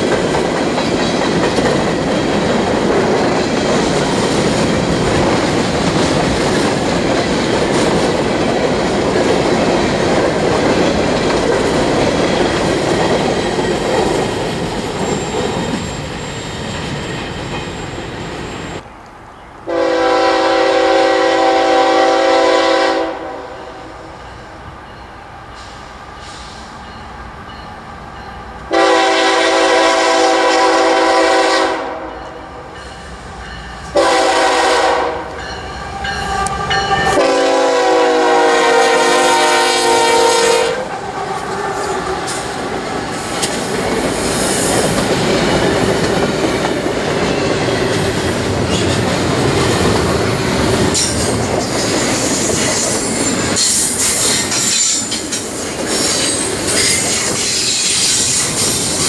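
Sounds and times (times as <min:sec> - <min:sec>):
wheels clickety-clack: 0:00.0 - 0:15.9, 0:41.8 - 0:59.0
train wheels rumbling on rail: 0:00.0 - 0:18.9, 0:19.7 - 0:59.0
high wheel squeal: 0:14.7 - 0:18.8
locomotive air horn blasts: 0:19.7 - 0:24.0, 0:28.7 - 0:32.3, 0:33.9 - 0:35.5, 0:36.3 - 0:40.9.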